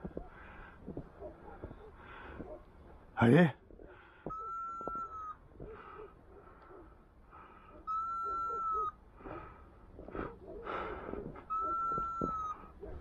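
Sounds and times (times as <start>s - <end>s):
breathing: 0.3s - 0.9s, 2.0s - 2.6s, 3.9s - 4.4s, 5.6s - 7.9s, 9.2s - 11.4s.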